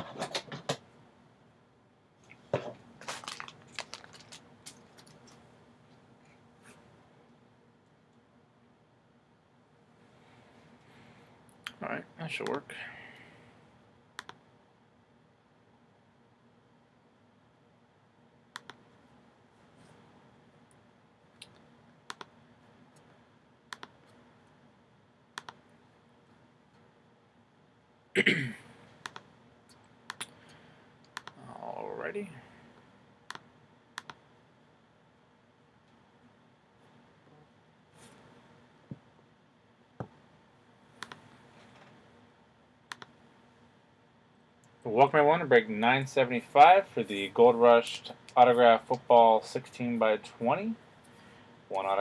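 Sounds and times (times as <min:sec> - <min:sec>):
crinkles: 0:03.0 - 0:05.4
computer mouse clicks: 0:14.2 - 0:14.4, 0:18.5 - 0:18.8, 0:21.4 - 0:22.4, 0:23.7 - 0:24.2, 0:25.4 - 0:25.6, 0:29.0 - 0:30.4, 0:31.0 - 0:31.4, 0:33.3 - 0:34.2, 0:41.0 - 0:41.2, 0:42.9 - 0:43.2.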